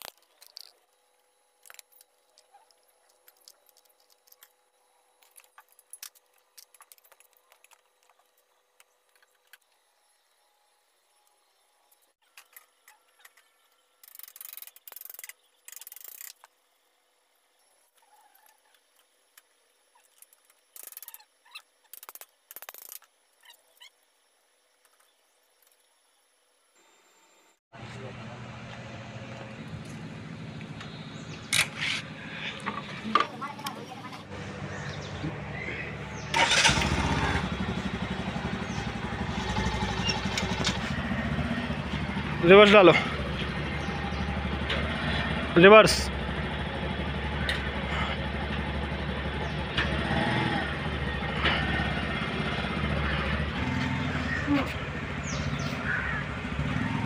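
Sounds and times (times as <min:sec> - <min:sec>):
ratchet wrench clicking: 0:14.0 - 0:16.4, 0:20.8 - 0:21.2
motorcycle engine starting and idling: 0:27.8 - 0:57.0.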